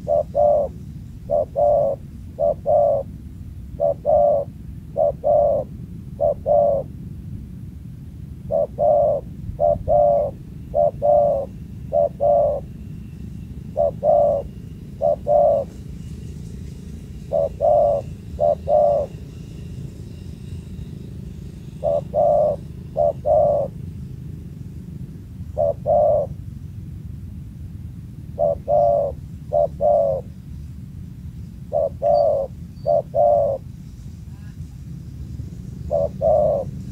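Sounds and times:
dove cooing: 0.0s - 6.9s, 8.4s - 16.1s, 17.1s - 24.0s, 25.4s - 26.5s, 28.3s - 30.4s, 31.6s - 33.7s, 35.8s - 36.9s
low background rumble: 0.0s - 36.9s.

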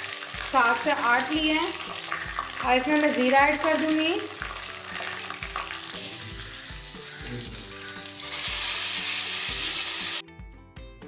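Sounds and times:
hot oil sizzling and crackling: 0.0s - 10.2s
loud steady hiss: 8.2s - 10.2s.

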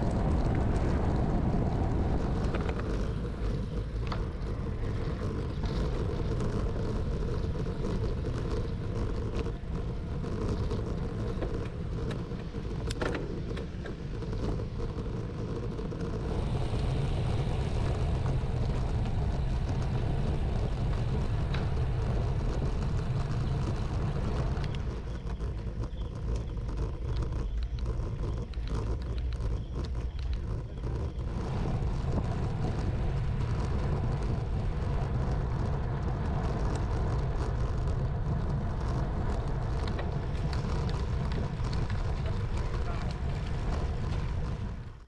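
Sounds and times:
tyre and road rumble: 0.0s - 45.0s
wind buffeting microphone: 0.0s - 45.0s.

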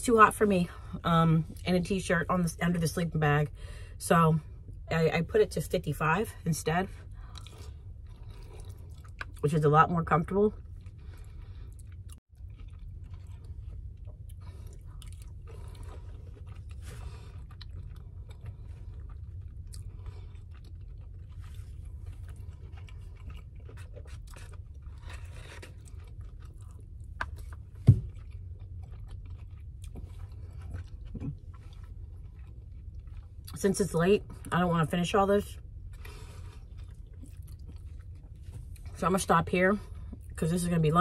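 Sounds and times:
steady low hum: 0.0s - 41.0s
person chewing food: 7.0s - 9.4s, 10.5s - 33.6s, 35.4s - 39.0s.

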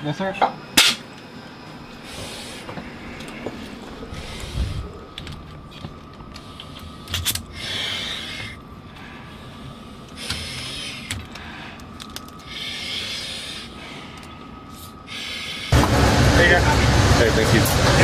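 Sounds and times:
hissing breaths through a mask: 2.0s - 5.2s, 6.3s - 15.8s.

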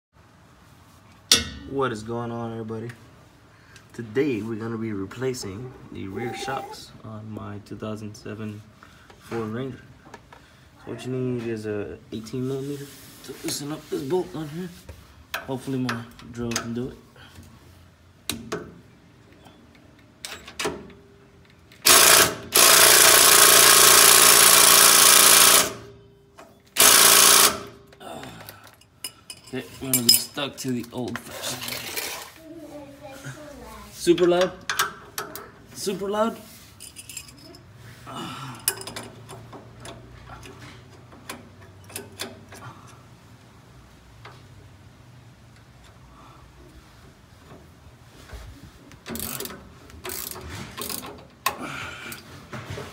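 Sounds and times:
impact driver hammering: 21.8s - 25.8s, 26.8s - 27.8s
wrenches clicking on metal bolt: 49.0s - 52.3s.

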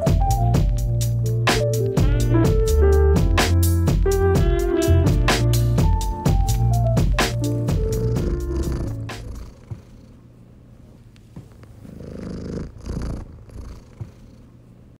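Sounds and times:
background music: 0.0s - 9.4s
cat purring: 7.5s - 14.9s.

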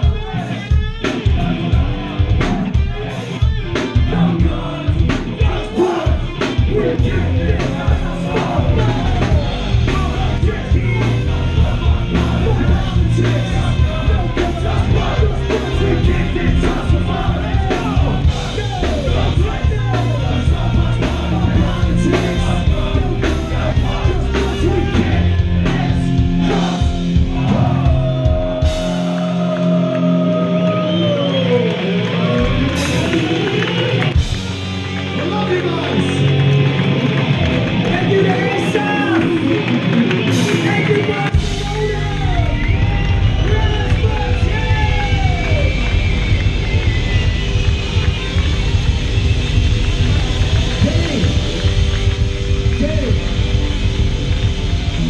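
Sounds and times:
drum kit: 0.0s - 30.2s, 32.3s - 35.2s, 36.0s - 55.0s
bass guitar: 0.0s - 55.0s
electric guitar: 0.0s - 55.0s
person singing: 4.0s - 33.6s.

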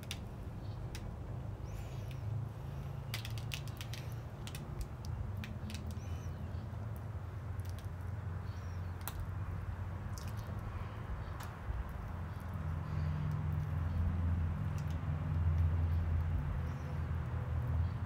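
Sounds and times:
wet sticky epoxy clicks: 3.1s - 9.3s, 10.1s - 13.8s, 14.6s - 16.4s.

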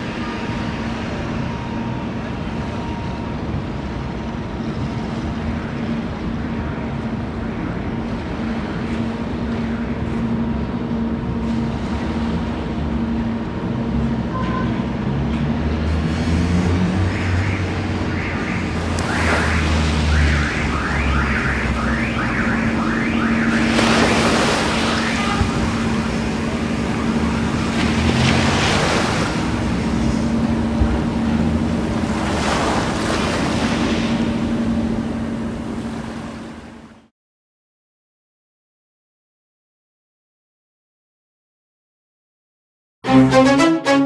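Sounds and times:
low engine rumble: 17.2s - 37.0s
waves washing up pebble beach: 18.8s - 20.5s, 23.5s - 30.1s, 32.0s - 34.3s
steady low hum: 22.0s - 37.0s.

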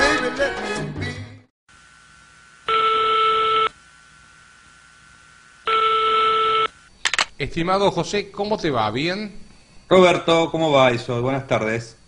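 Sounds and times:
telephone ringing tone: 2.6s - 3.8s, 5.6s - 6.8s.

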